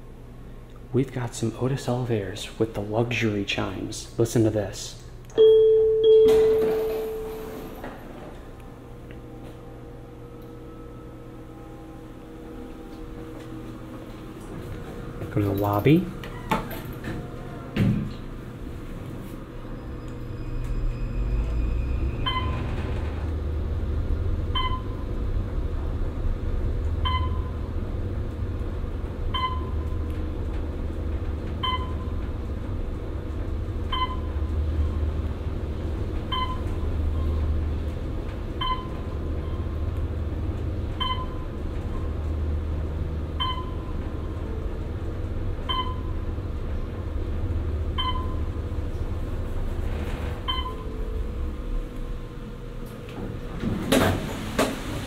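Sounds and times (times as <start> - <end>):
elevator low rumble: 0.0 - 55.0
short electronic tone: 5.4 - 7.9.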